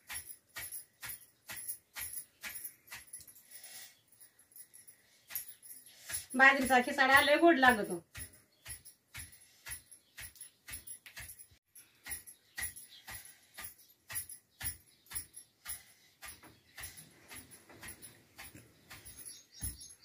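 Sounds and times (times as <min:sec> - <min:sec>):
wooden pestle pounding in stone mortar: 0:06.1 - 0:20.0.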